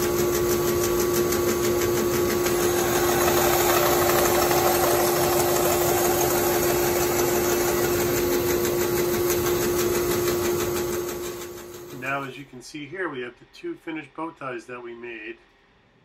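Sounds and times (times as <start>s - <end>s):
bandsaw humming: 2.2s - 12.1s.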